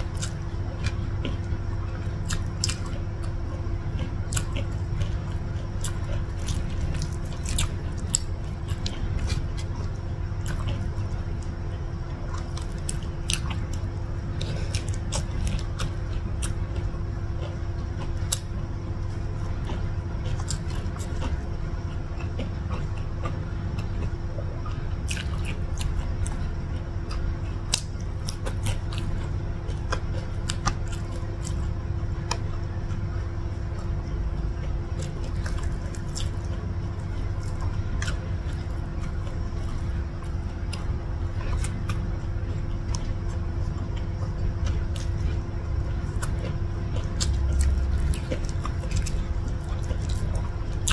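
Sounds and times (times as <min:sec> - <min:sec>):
steady low hum: 0:00.0 - 0:50.9
wet chewing: 0:00.0 - 0:50.9.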